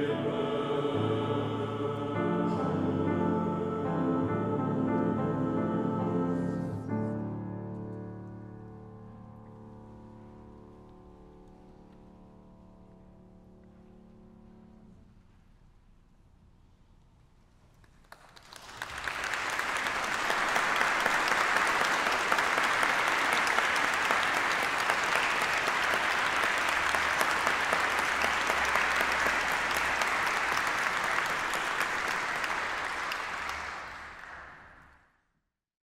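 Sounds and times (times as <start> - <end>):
audience applauding: 18.0 - 35.0.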